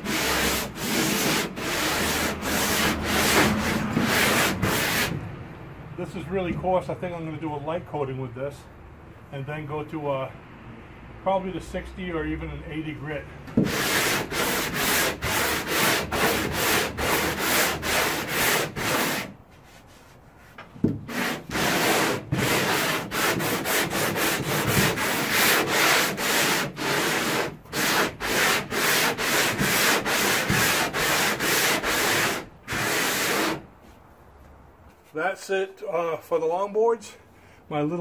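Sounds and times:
sandpaper rasping on hull: 0.0s - 5.2s, 13.6s - 33.7s.

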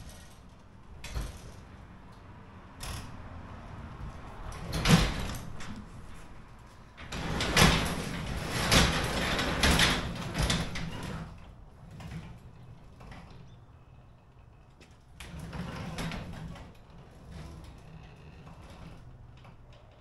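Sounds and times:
garage door sliding up: 4.4s - 20.0s.

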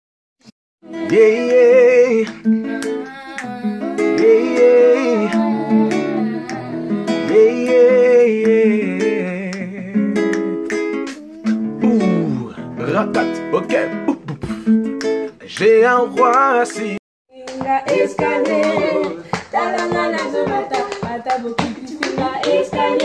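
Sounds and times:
young voices singing together: 0.8s - 9.6s, 15.6s - 23.0s
acoustic guitar strumming: 0.8s - 17.0s.

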